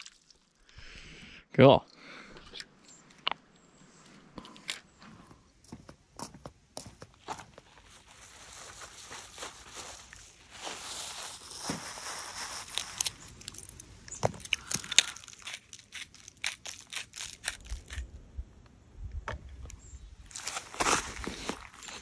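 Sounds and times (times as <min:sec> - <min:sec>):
plastic bag rustling: 0:07.8 - 0:14.5.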